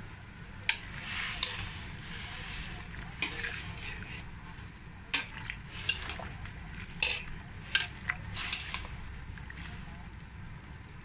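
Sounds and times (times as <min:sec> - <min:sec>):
boiling water: 0:00.0 - 0:11.0
utensil clinking against wok: 0:00.7 - 0:01.8, 0:05.2 - 0:06.3, 0:06.9 - 0:09.0.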